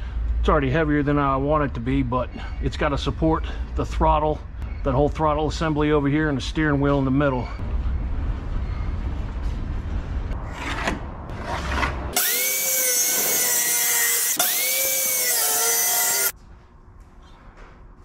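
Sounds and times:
low rumbling noise: 0.0s - 15.3s
circular saw cutting plywood: 11.3s - 16.3s.

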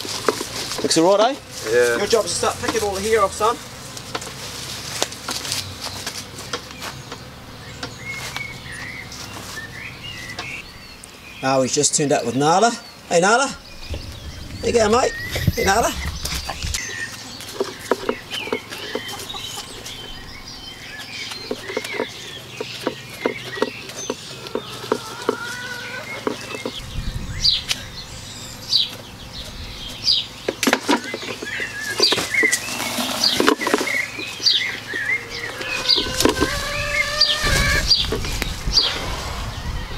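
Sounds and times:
small birds chirping: 0.0s - 39.9s
rush of noise: 13.7s - 16.8s, 37.4s - 39.9s.

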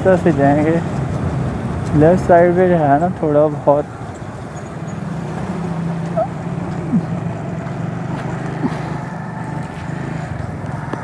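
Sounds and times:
motorcycle engine running: 4.3s - 11.0s.

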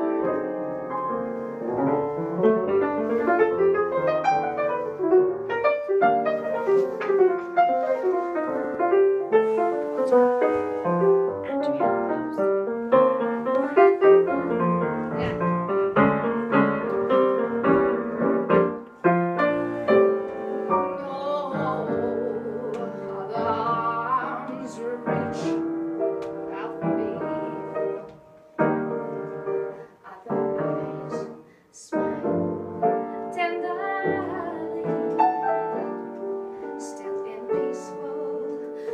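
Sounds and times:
piano playing classical music: 0.0s - 38.9s
person singing with vibrato: 19.6s - 25.7s, 36.7s - 38.9s.

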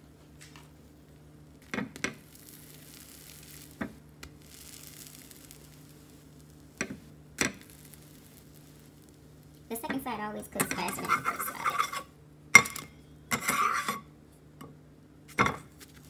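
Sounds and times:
batter sizzling in a pan: 1.3s - 14.2s, 15.3s - 16.0s
metal spatula scraping pan: 10.6s - 12.1s, 13.3s - 14.1s.

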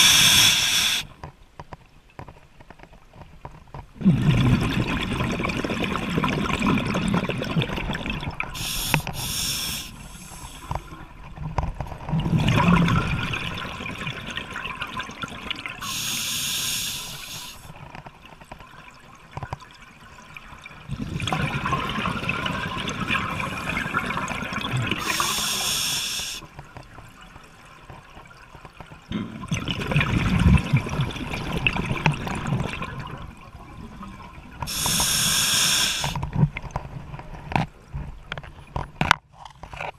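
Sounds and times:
regulator inhale hiss: 0.0s - 1.1s, 8.6s - 10.9s, 15.8s - 17.7s, 25.0s - 26.4s, 34.7s - 36.2s
exhaled bubbles underwater: 4.0s - 11.3s, 12.0s - 17.6s, 19.8s - 26.2s, 29.1s - 35.3s.

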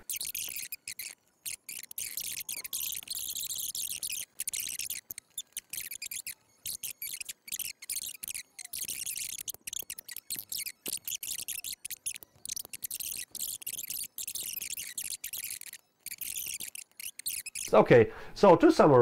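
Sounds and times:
keyboard typing: 0.0s - 17.8s.

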